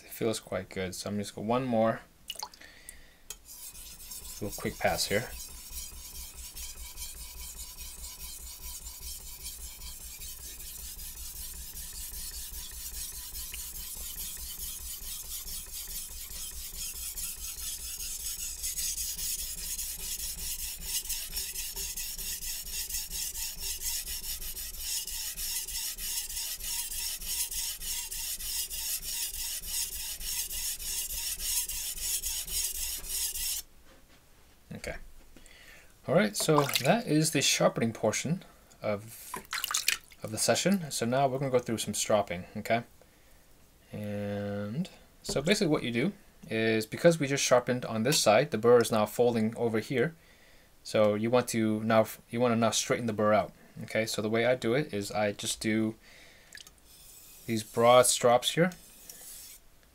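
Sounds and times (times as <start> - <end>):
knife scraping on whetstone: 3.4 - 33.7, 56.9 - 59.6.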